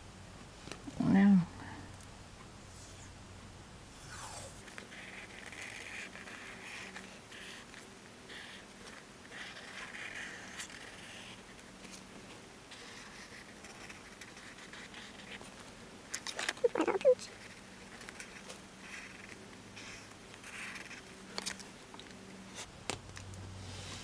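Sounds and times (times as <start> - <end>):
marker scratching on paper: 4.5 - 12.0, 12.7 - 15.5, 16.7 - 21.0.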